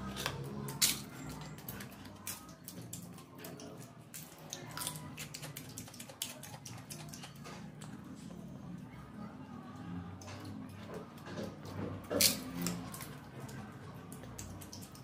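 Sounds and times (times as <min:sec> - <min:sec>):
hands mixing rice on steel plate: 0:00.0 - 0:08.1.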